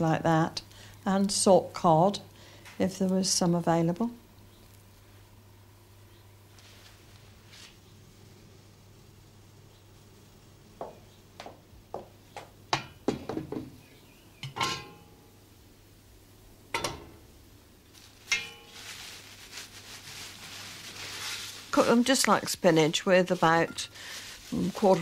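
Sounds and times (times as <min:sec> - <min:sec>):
metal pans clinking and clanking: 0:14.4 - 0:15.1, 0:18.3 - 0:18.8, 0:23.6 - 0:24.0
steaming pan hissing: 0:23.2 - 0:25.0.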